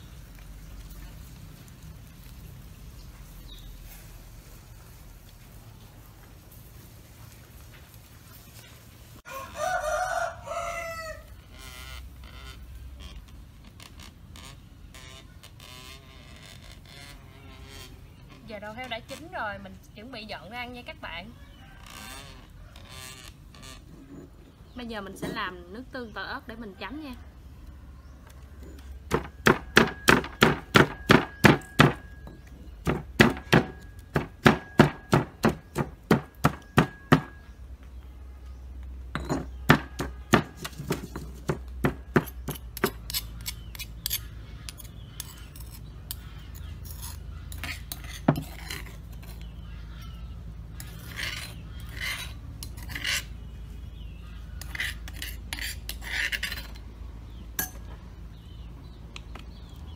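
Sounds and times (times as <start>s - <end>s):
utensils clinking and scraping: 39.2s - 50.2s, 50.8s - 53.4s, 54.6s - 56.9s.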